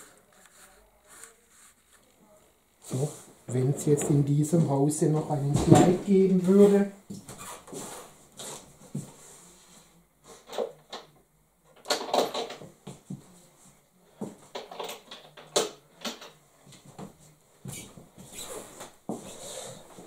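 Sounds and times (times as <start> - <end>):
rustling: 0.0 - 4.2.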